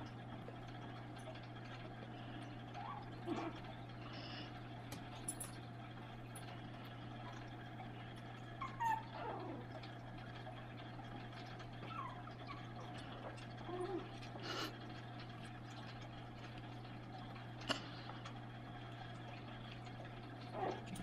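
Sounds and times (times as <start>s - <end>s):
steady low hum: 0.0s - 21.0s
puppies whimpering and yipping: 2.7s - 3.6s, 8.5s - 9.9s, 11.7s - 14.6s, 20.4s - 21.0s.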